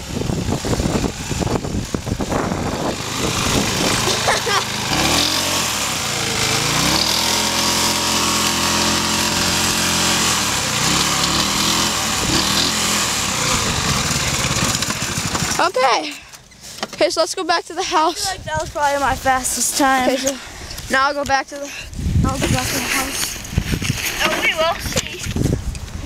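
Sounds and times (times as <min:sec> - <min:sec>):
small engine running under load: 0:00.0 - 0:16.6.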